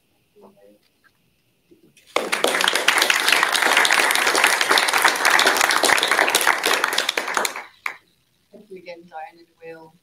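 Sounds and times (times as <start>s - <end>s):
audience applauding: 2.1s - 8.0s.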